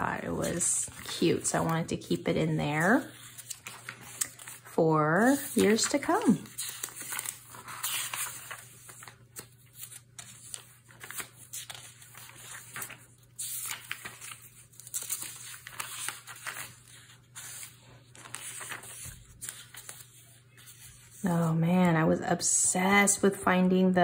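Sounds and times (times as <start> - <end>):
paper pages rustling: 0.0 - 21.2.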